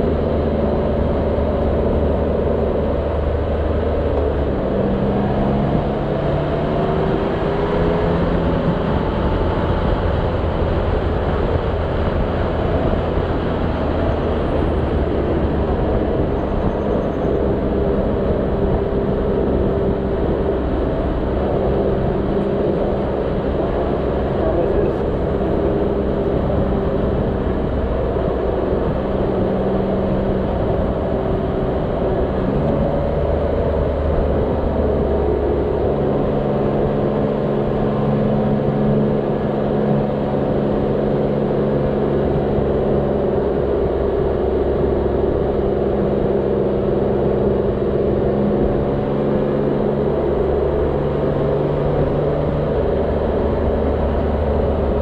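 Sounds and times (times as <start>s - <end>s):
wind and road noise: 0.0s - 55.0s.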